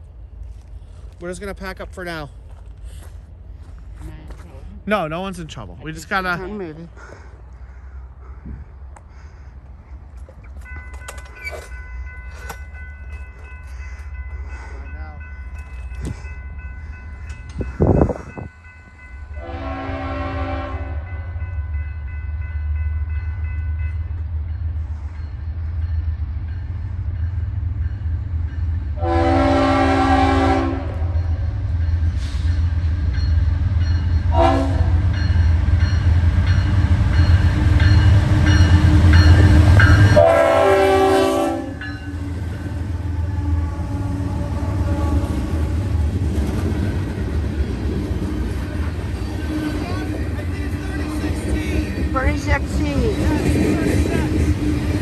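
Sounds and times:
train engines and wheels rumbling: 0:00.0 - 0:55.0
train air horn blasts: 0:19.3 - 0:21.2, 0:29.0 - 0:31.2, 0:34.3 - 0:35.0, 0:39.9 - 0:41.9, 0:43.0 - 0:45.8, 0:49.3 - 0:50.2.

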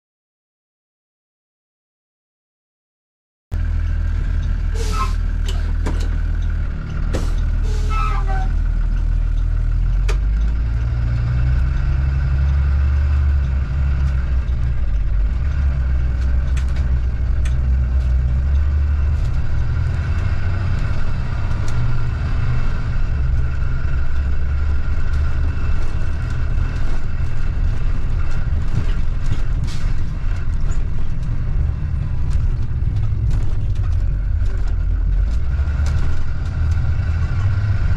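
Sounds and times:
bus engine and road rumble: 0:03.5 - 0:37.9
short squeaks and clicks: 0:04.8 - 0:09.5.

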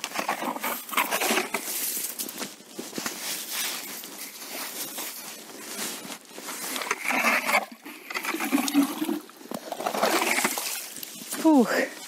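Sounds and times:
auger grinding slushy ice: 0:00.0 - 0:02.0, 0:06.6 - 0:11.3.

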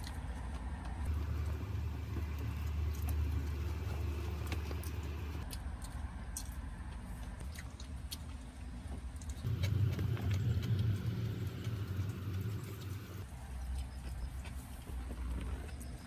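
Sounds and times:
vehicle rumble: 0:00.0 - 0:16.0.

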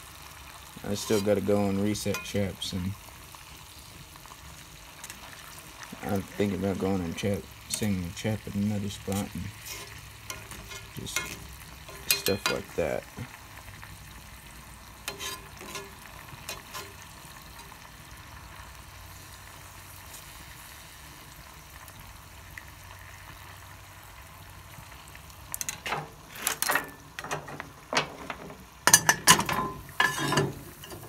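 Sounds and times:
meat sizzling in oil: 0:00.0 - 0:26.3, 0:26.9 - 0:31.0
metal lid clanking and scraping: 0:01.0 - 0:01.4, 0:02.0 - 0:02.4, 0:09.1 - 0:12.8, 0:15.1 - 0:17.0, 0:25.6 - 0:31.0.

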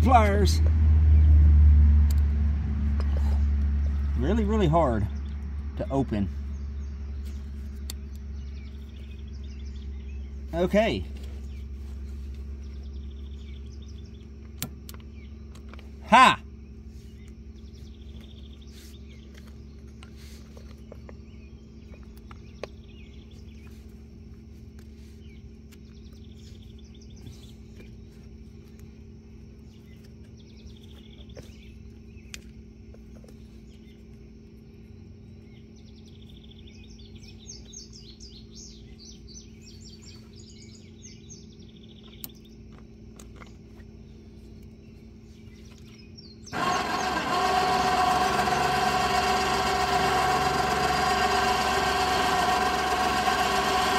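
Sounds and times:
steady low hum: 0:00.0 - 0:53.9
birds chirping: 0:03.0 - 0:53.9
winch motor whining: 0:46.4 - 0:53.9.

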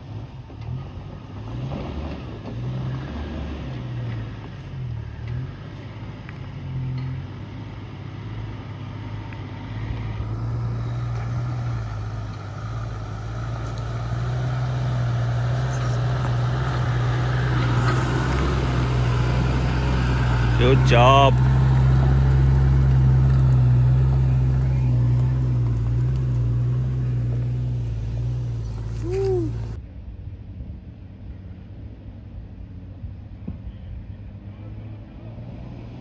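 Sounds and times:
vehicle engine climbing: 0:00.0 - 0:36.0.

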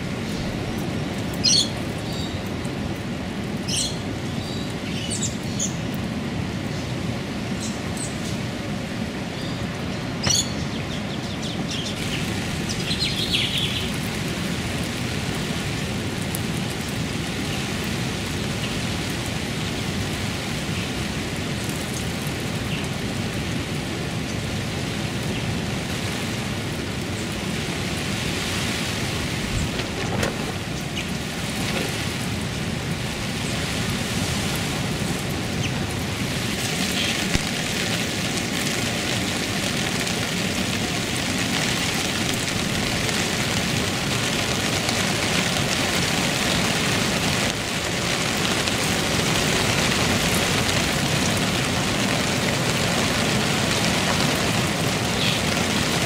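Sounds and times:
steady rain: 0:00.0 - 0:56.0
bird chirps: 0:10.2 - 0:13.9.

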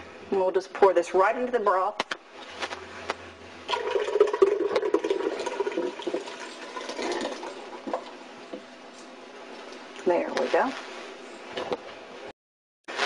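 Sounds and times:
thick liquid splashing and gurgling: 0:03.7 - 0:07.9.

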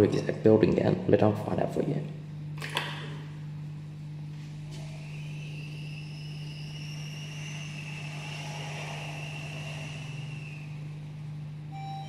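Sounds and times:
steady low hum: 0:00.0 - 0:12.0
elevator motor whine: 0:03.4 - 0:12.0.

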